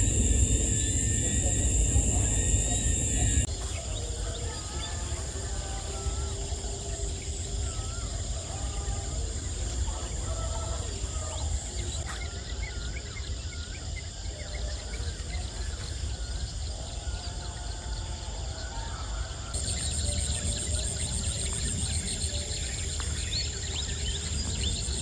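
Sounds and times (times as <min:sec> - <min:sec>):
wind rumble on microphone: 0:00.0 - 0:12.1
insects droning: 0:00.0 - 0:25.0.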